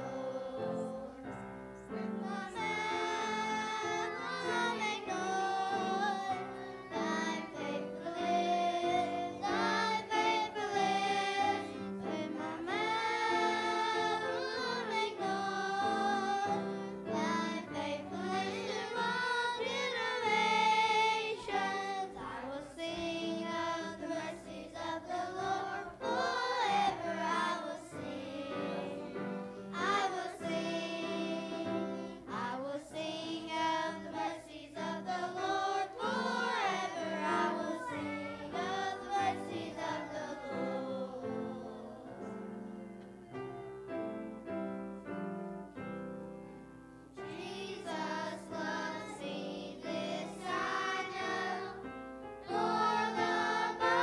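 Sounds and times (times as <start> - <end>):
children singing into microphones: 0.0 - 43.7, 47.2 - 54.0
musical accompaniment: 0.0 - 54.0.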